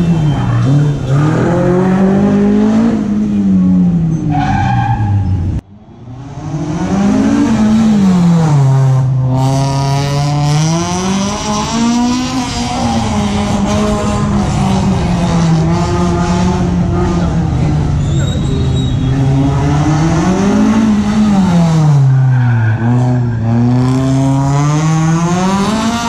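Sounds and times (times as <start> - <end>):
tire squeal: 0.0 - 1.4, 4.1 - 6.1, 17.3 - 20.0, 22.0 - 23.9
car engine revving: 0.0 - 26.0.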